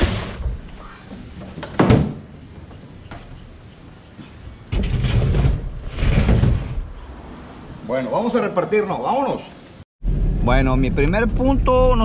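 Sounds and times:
heavy thumping and scraping: 4.7s - 7.0s.

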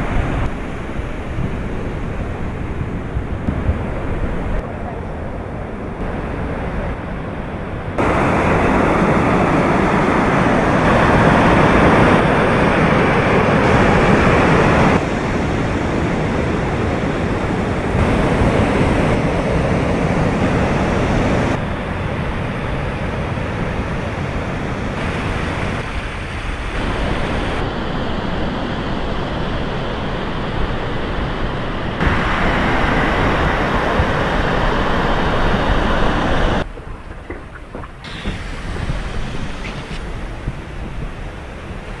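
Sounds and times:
waterfall and river rushing: 7.9s - 21.6s, 23.0s - 42.0s.

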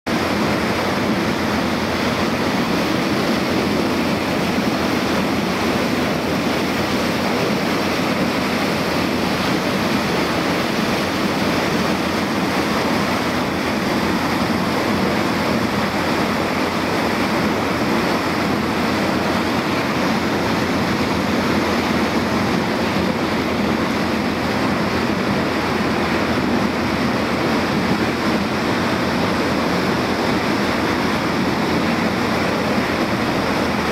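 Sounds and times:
water rushing along hull: 0.0s - 33.9s
boat engine drone: 0.1s - 33.9s
wind on microphone: 0.1s - 33.9s.

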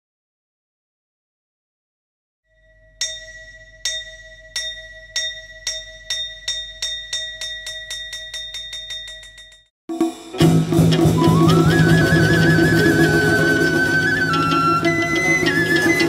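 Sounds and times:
small bell struck in a roll: 2.5s - 10.2s.

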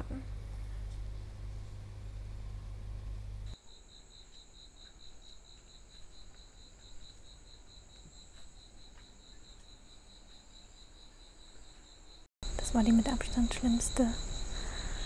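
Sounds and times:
insect chirping: 2.5s - 15.0s.

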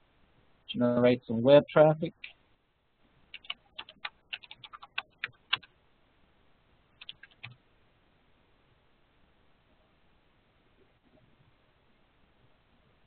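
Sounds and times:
computer keyboard typing: 3.3s - 5.7s, 7.0s - 7.6s.

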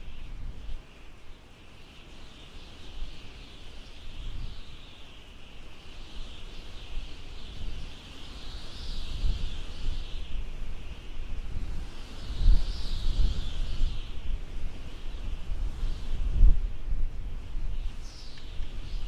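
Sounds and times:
high-pitched hissing drone: 2.2s - 16.8s.

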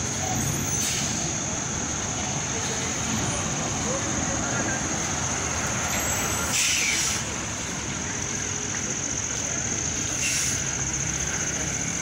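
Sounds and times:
passing traffic whooshes: 0.0s - 12.0s
vehicle road and wind noise: 0.0s - 12.0s
high hiss: 6.2s - 7.6s, 8.9s - 12.0s.

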